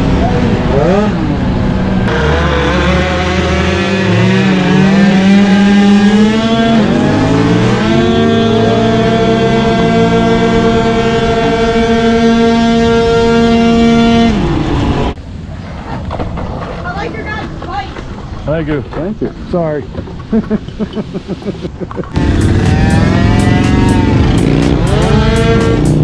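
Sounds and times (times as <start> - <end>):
deep motorcycle rumble: 0.0 - 15.2, 22.0 - 26.0
motorcycles accelerating: 0.0 - 15.2, 20.3 - 26.0
scooter engine buzzing: 0.0 - 15.2, 22.1 - 26.0.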